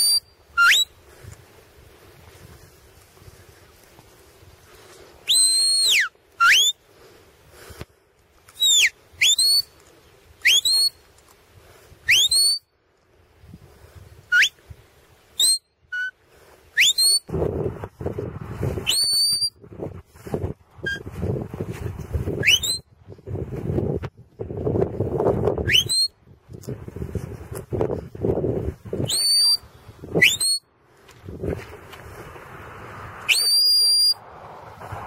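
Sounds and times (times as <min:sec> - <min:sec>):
sharp whistle notes: 0:00.0 - 0:01.0, 0:05.2 - 0:06.8, 0:08.6 - 0:09.8, 0:10.4 - 0:11.0, 0:12.0 - 0:12.7, 0:14.3 - 0:14.6, 0:15.4 - 0:16.1, 0:16.8 - 0:17.3, 0:18.8 - 0:19.6, 0:22.4 - 0:22.9, 0:25.6 - 0:26.2, 0:29.0 - 0:30.6, 0:33.3 - 0:34.2
wind noise on microphone: 0:00.0 - 0:35.0.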